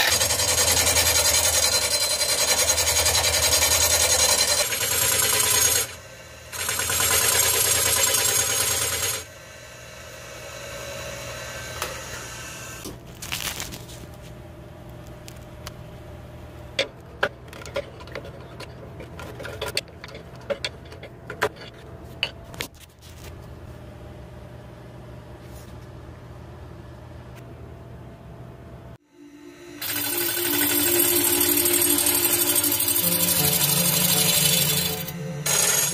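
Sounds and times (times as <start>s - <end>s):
hollowing tool rasping cut: 0.0s - 9.3s, 29.8s - 35.9s
lathe humming: 29.1s - 35.9s.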